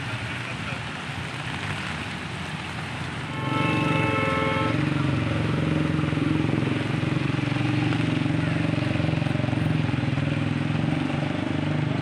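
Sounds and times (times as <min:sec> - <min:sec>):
traffic noise: 0:00.0 - 0:12.0
vehicle engine running close: 0:00.0 - 0:12.0
vehicle horn: 0:03.3 - 0:04.9.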